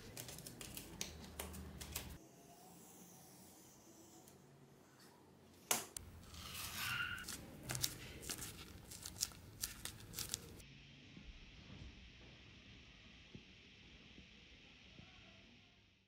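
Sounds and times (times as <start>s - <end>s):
leather rustling and creaking: 6.1s - 10.6s
small crackles and clicks: 7.2s - 10.6s.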